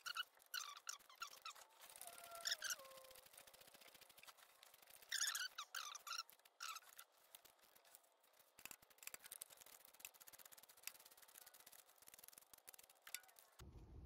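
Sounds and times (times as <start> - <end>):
faint irregular clicks: 0.0 - 13.6
low hum: 13.6 - 14.0.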